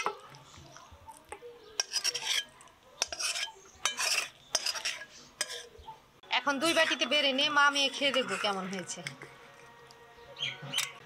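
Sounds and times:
metal spatula scraping a pan: 1.8s - 9.7s, 10.4s - 11.0s.

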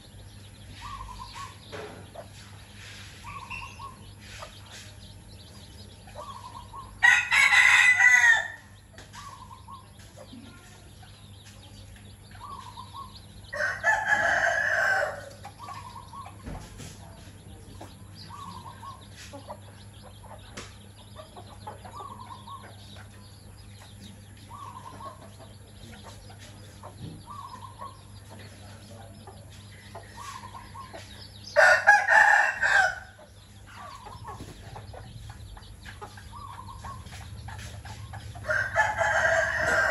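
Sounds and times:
hens clucking: 0.0s - 39.9s
rooster crowing: 7.0s - 8.8s, 13.5s - 15.4s, 31.6s - 33.2s, 38.4s - 39.9s.

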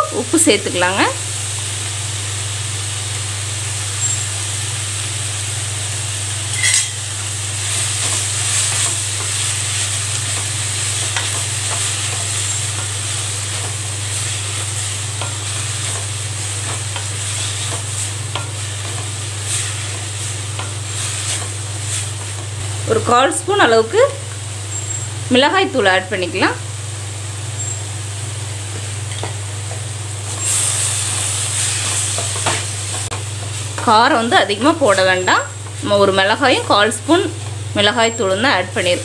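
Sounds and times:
vegetables sizzling in a wok: 0.0s - 39.0s
wooden spatula scraping: 7.7s - 22.6s.

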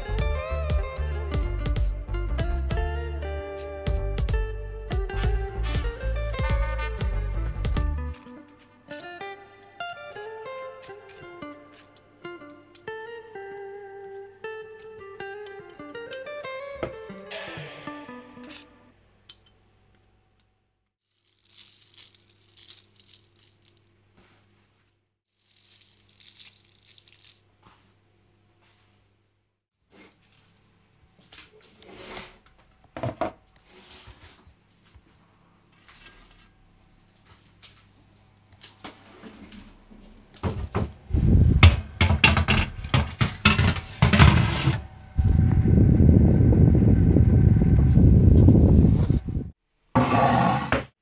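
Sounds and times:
sugar sprinkled crackly rustle: 21.0s - 27.9s
baking paper crinkling: 21.0s - 28.0s
metal baking tray clattering: 42.0s - 44.8s
steady low rumble: 45.2s - 49.6s.

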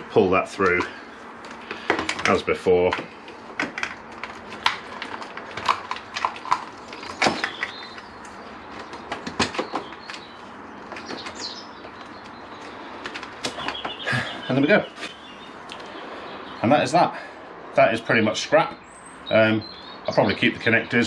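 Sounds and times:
plastic connectors scraping: 0.6s - 10.2s
cables clicking and knocking: 0.6s - 14.0s.

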